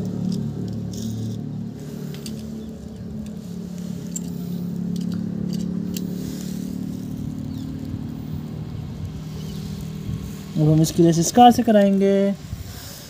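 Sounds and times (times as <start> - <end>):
grit clicking under wheels: 0.0 - 13.0
toy car motor whirring: 0.3 - 1.5, 2.1 - 12.0.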